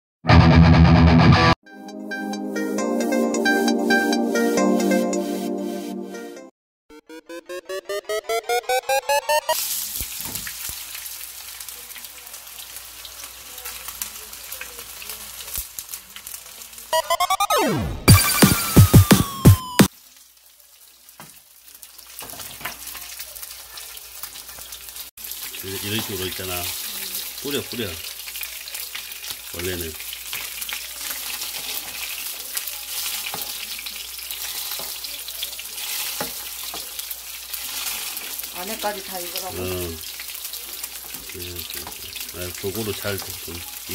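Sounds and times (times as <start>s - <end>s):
fish frying in hot oil: 9.6s - 17.0s, 19.9s - 43.9s.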